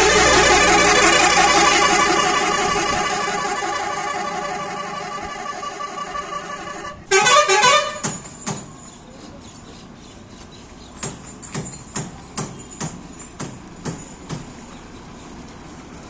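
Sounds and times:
horn playing stepped notes: 0.0 - 8.0
long bus horn blast: 0.0 - 8.1
bus and street noise: 0.0 - 16.0.

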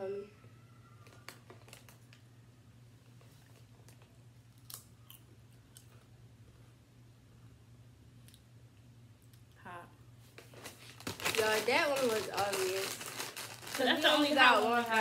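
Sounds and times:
potato chip crunching: 4.0 - 6.0, 10.4 - 15.0.

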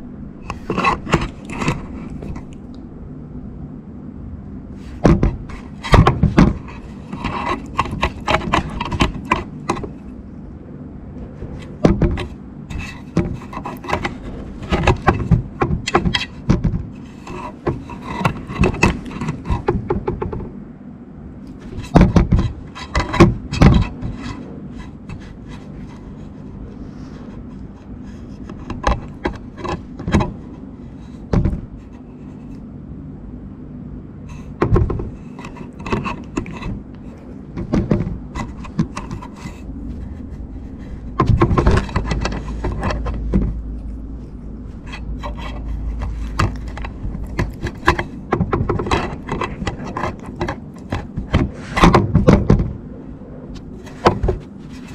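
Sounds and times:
low muffled rumbling: 0.0 - 54.9
cat rubbing against microphone: 4.7 - 10.2, 11.3 - 20.1, 21.5 - 32.6, 34.3 - 51.8, 52.8 - 54.9
sharp knocks on camera: 34.6 - 35.1.

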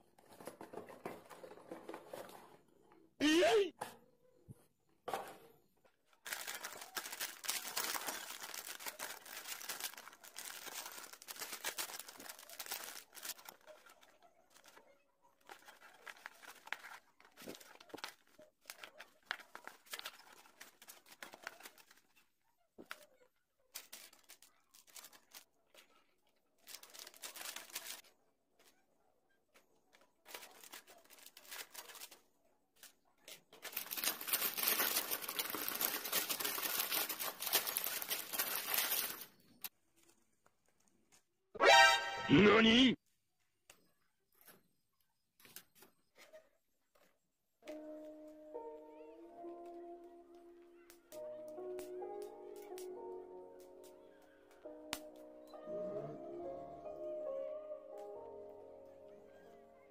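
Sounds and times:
plastic bags crinkling and tearing: 6.2 - 22.2, 23.7 - 28.1, 29.9 - 40.2
paper manual rustling: 6.2 - 28.8, 29.6 - 41.0.

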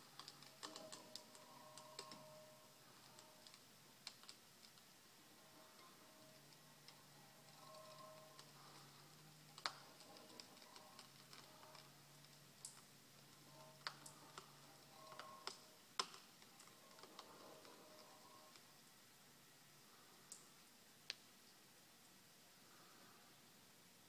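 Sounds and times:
faint low hum: 0.0 - 24.0
sharp clicks and ticks: 0.2 - 2.4, 3.0 - 4.9, 9.5 - 18.6.

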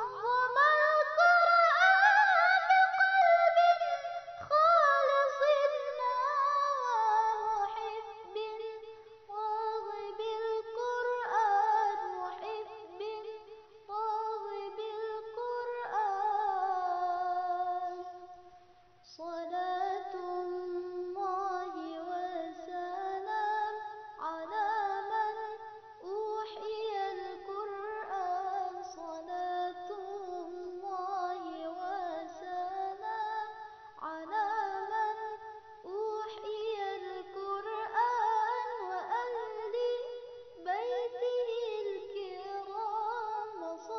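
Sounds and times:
high voice singing: 0.0 - 18.2.

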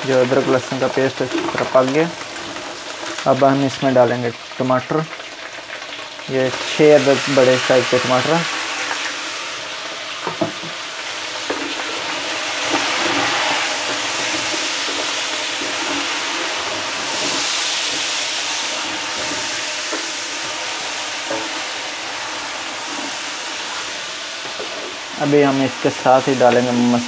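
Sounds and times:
tomatoes sizzling in hot oil: 0.0 - 27.0
wooden spoon scraping a pot: 11.5 - 18.1.

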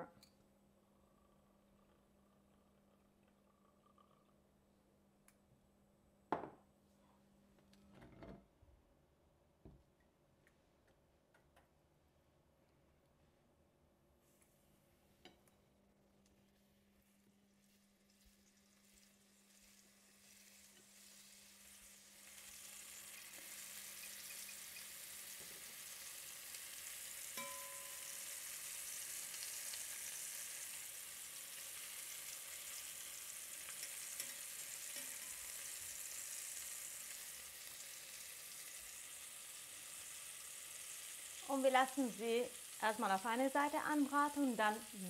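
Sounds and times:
meatballs sizzling in a pan: 16.3 - 45.0
single clink: 27.4 - 28.0.

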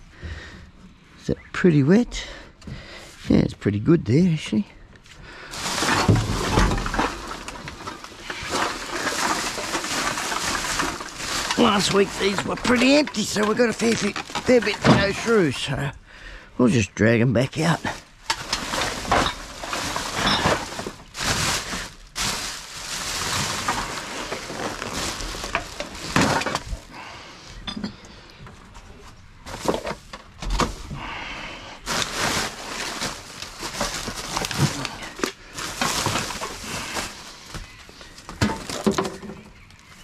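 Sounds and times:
plastic bags crinkling: 5.5 - 15.7, 17.7 - 27.0, 31.8 - 40.0
cans and bottles clinking: 5.6 - 15.4, 18.3 - 22.5.

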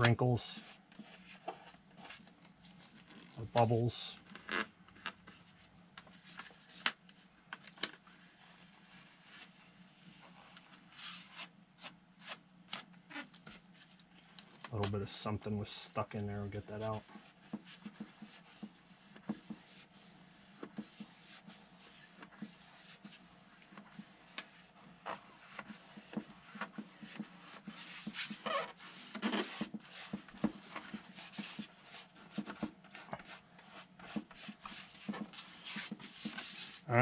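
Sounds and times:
small taps and crinkles: 0.9 - 8.1, 16.8 - 19.8, 22.2 - 36.8
hands rubbing a decal: 15.9 - 36.9.

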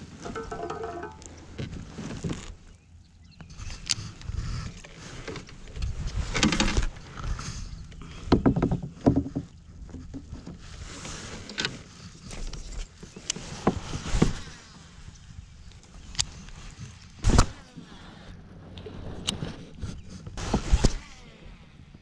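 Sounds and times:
handling noise: 0.0 - 2.6.

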